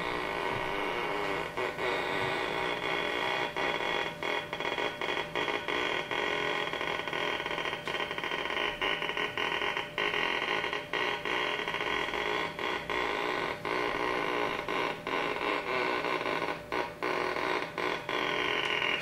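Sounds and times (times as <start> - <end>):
dense electronic drone: 0.0 - 19.0.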